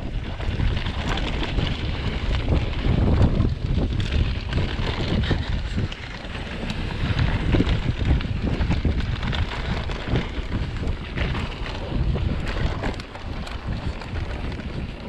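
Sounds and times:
bike knocks and rattles: 0:00.0 - 0:15.0
tyres running on loose dirt: 0:00.0 - 0:15.0
wind rushing over microphone: 0:00.0 - 0:15.0.

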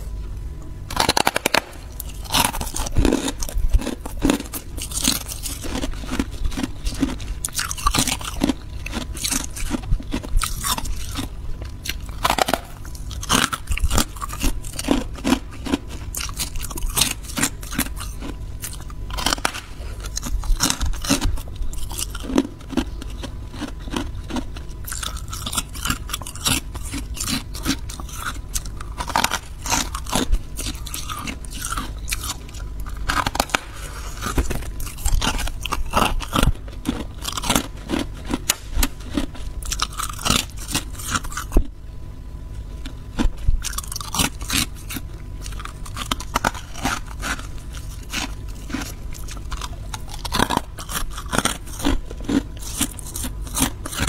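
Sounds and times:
frost being crunched: 0:00.9 - 0:03.4, 0:19.1 - 0:20.8, 0:33.0 - 0:36.5.

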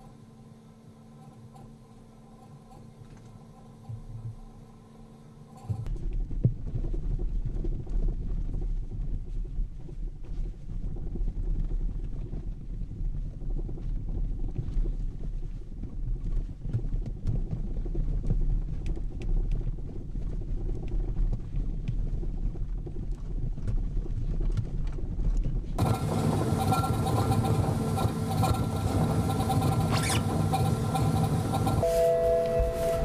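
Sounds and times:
low rumble in car cabin: 0:05.7 - 0:33.0
test rig mechanical noise: 0:25.8 - 0:33.0
electronic tones: 0:31.8 - 0:33.0.

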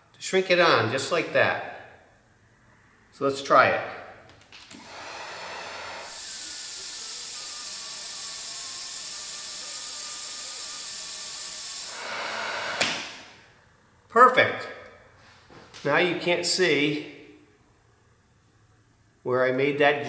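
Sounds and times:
heat gun blowing air: 0:04.8 - 0:13.0.

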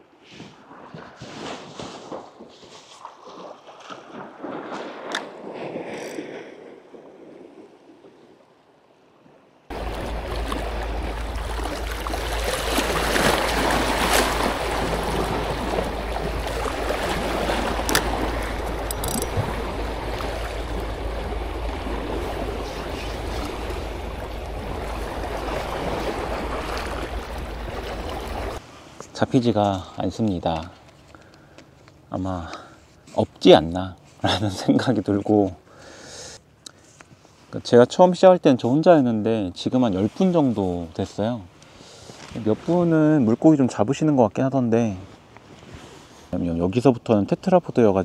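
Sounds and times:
waves washing against rocks: 0:09.7 - 0:28.6
wind on microphone: 0:09.7 - 0:28.6.

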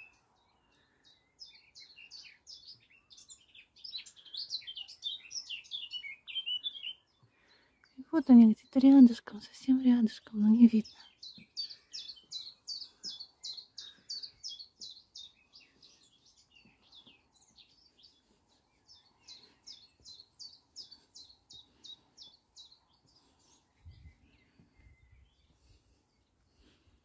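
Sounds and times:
songbird singing rapid high notes: 0:01.4 - 0:07.1, 0:09.6 - 0:24.3.

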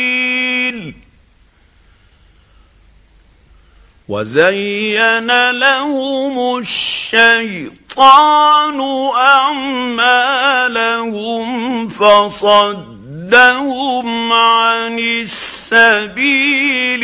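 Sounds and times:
man reciting melodically: 0:00.0 - 0:01.1, 0:04.0 - 0:17.0.

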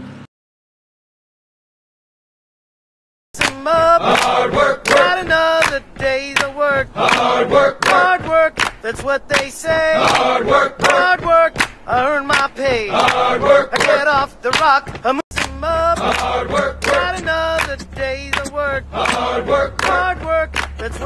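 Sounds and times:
voices singing together: 0:03.4 - 0:21.0
sharp regular percussion: 0:15.4 - 0:20.8
steady low hum: 0:15.4 - 0:21.0.

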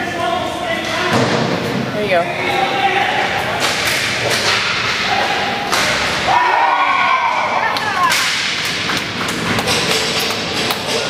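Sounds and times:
hockey sticks striking puck: 0:03.4 - 0:06.6, 0:07.6 - 0:11.0.

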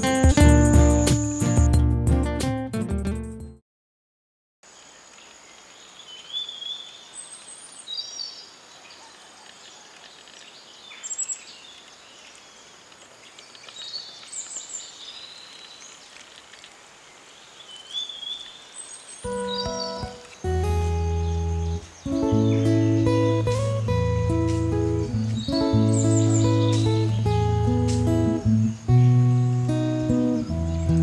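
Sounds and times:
acoustic guitar music: 0:00.0 - 0:03.6, 0:19.2 - 0:31.0
birds chirping: 0:04.7 - 0:31.0
steady background hiss: 0:04.7 - 0:31.0.

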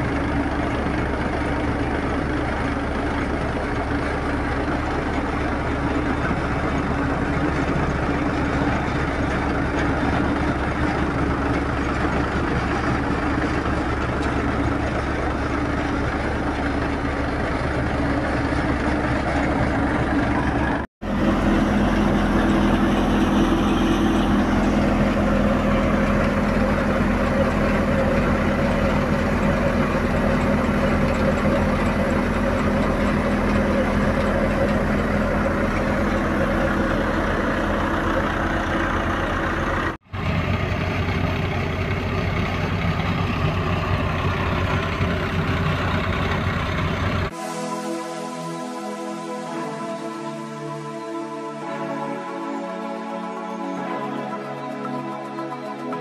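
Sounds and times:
thresher engine droning: 0:00.0 - 0:56.0.

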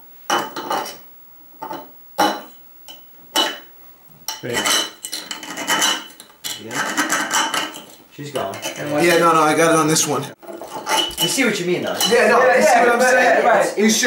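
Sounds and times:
knife scraping on glass bottle: 0:10.4 - 0:11.4.

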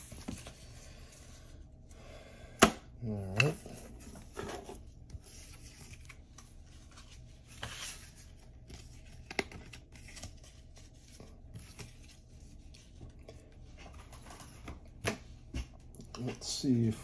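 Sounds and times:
trading cards rustling: 0:04.0 - 0:14.7.

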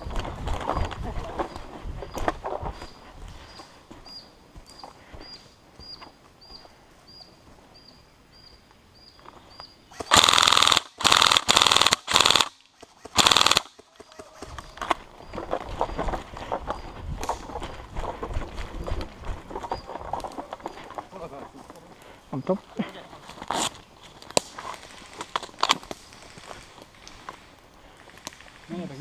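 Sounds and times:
airsoft rifle full-auto bursts: 0:10.0 - 0:14.0.

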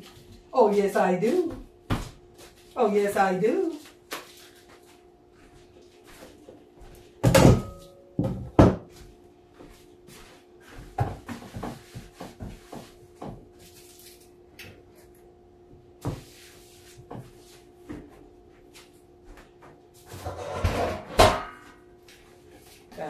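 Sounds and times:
knocks and clunks in kitchen: 0:01.4 - 0:02.4, 0:06.5 - 0:09.7, 0:10.6 - 0:13.6, 0:15.6 - 0:21.9.

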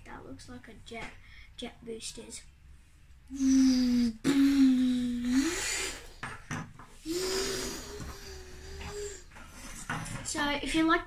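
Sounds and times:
boy making engine noises: 0:03.3 - 0:06.2, 0:07.0 - 0:09.3.

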